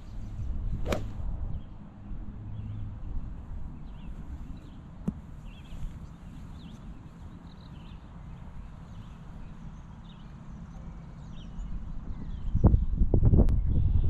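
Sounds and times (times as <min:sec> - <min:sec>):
small birds chirping: 0:03.8 - 0:13.0
wind buffeting microphone: 0:11.6 - 0:14.0.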